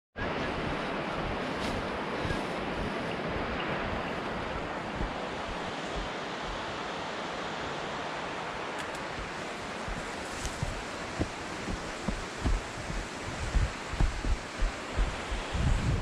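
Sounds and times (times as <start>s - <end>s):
wind buffeting microphone: 0.2s - 16.0s.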